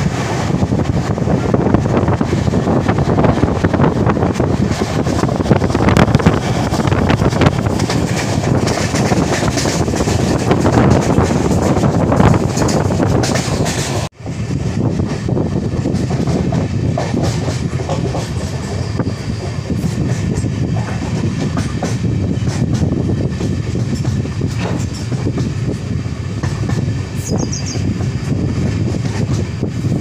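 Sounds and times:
train wheels clattering on track: 0:00.0 - 0:30.0
wind rushing: 0:00.0 - 0:30.0.

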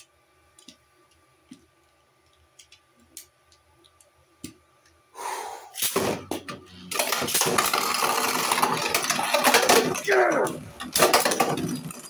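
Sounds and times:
spinning top launch whirr: 0:06.9 - 0:12.0
spinning tops clattering in stadium: 0:06.9 - 0:12.0.

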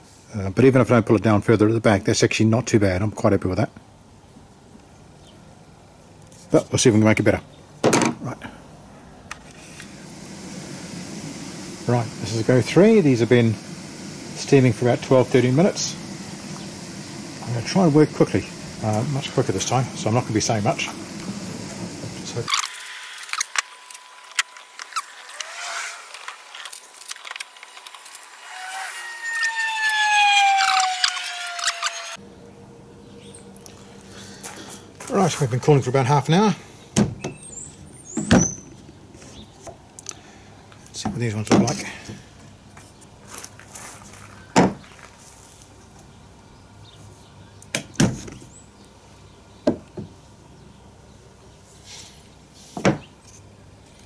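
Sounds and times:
faint steady whine: 0:09.2 - 0:35.2
whine sliding down in pitch: 0:20.8 - 0:32.2.

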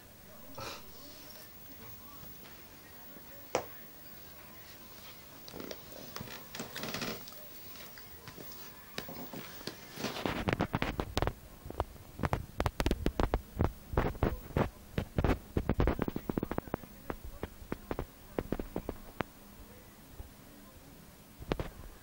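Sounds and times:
rabbit crunching dry food: 0:03.6 - 0:19.3.

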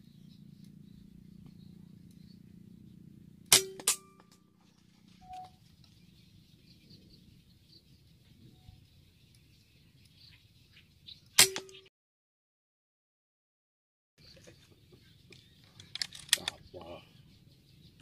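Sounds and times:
air rifle shots: 0:03.5 - 0:04.2.

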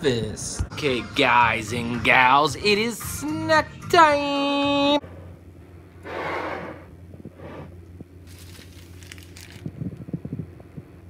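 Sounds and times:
plastic packaging crinkling: 0:08.2 - 0:09.8.

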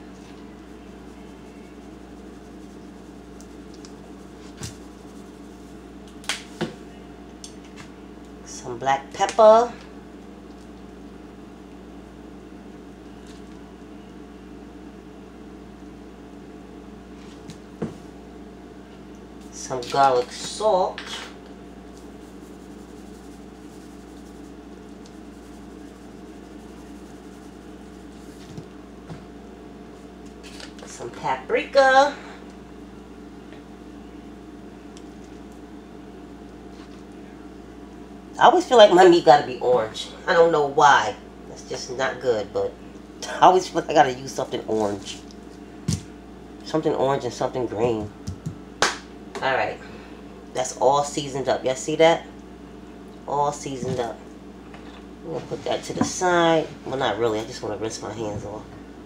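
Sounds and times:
steady background hum: 0:00.0 - 0:59.0
spice shaker rattling: 0:00.7 - 0:05.8, 0:21.9 - 0:28.4.

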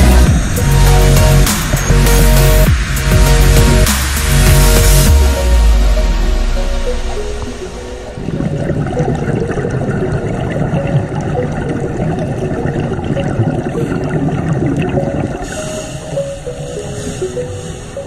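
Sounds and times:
underwater bubbles gurgling: 0:07.0 - 0:18.0.

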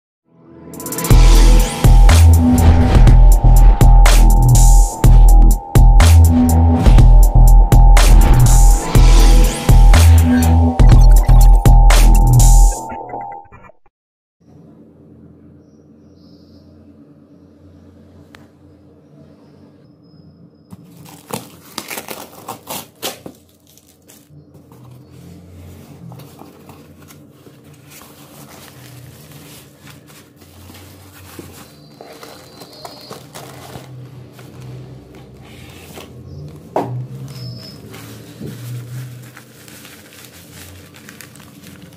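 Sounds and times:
electronic music with heavy bass: 0:00.8 - 0:13.8
cardboard and plastic rustling: 0:20.7 - 0:41.9.

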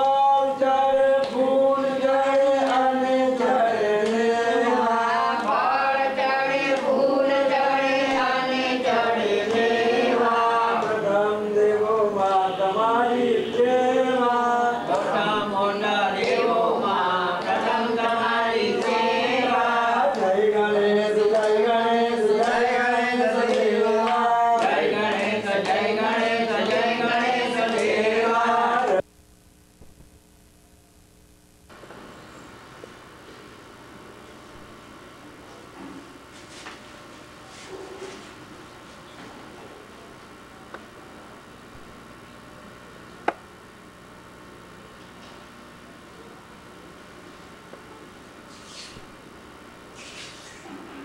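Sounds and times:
group chanting a mantra: 0:00.0 - 0:29.0.

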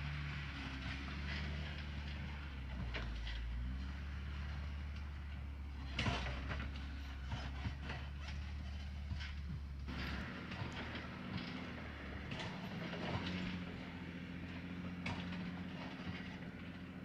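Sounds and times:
engine running low: 0:00.0 - 0:17.0
knocks over rough ground: 0:04.6 - 0:16.9.

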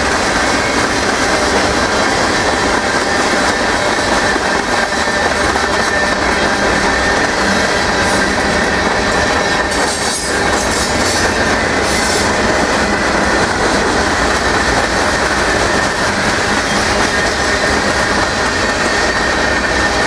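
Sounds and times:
freight train wheels rumbling: 0:00.0 - 0:20.0
high-pitched wheel squeal: 0:02.9 - 0:12.3.

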